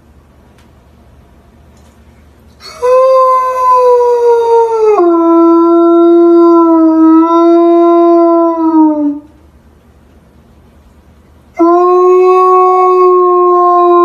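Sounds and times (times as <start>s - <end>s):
dog howling: 2.6s - 9.3s, 11.6s - 14.0s.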